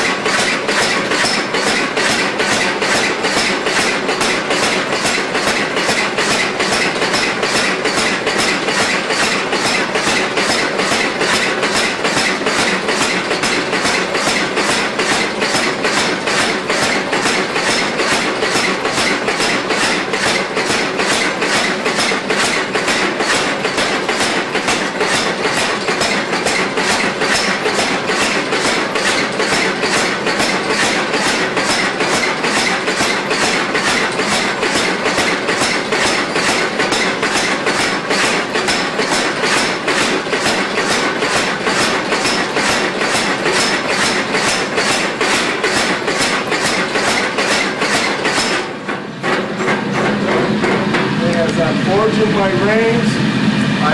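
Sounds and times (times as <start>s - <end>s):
continuous rushing noise: 49.3s - 53.9s.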